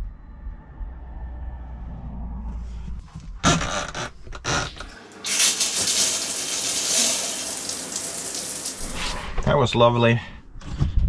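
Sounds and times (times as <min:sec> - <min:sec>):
shower spraying water: 0:04.9 - 0:09.2.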